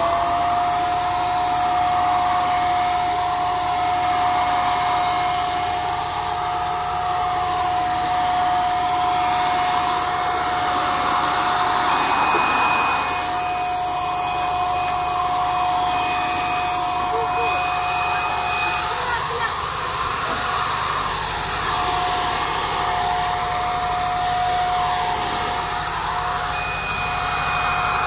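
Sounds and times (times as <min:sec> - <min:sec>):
paint sprayer motor whine: 0:00.0 - 0:28.0
higher tone: 0:09.0 - 0:19.0
rush of air: 0:09.1 - 0:14.6.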